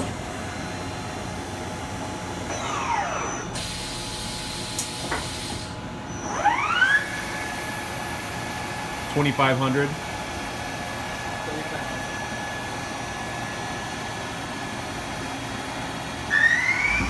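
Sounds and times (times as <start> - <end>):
machine spindle motor whine: 2.4 - 3.9, 12.2 - 17.0.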